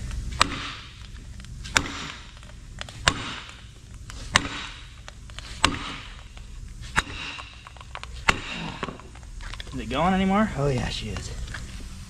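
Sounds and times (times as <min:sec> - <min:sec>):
sledgehammer striking steel bar: 0:00.4 - 0:01.0, 0:01.7 - 0:02.4, 0:03.0 - 0:05.0, 0:05.6 - 0:09.0.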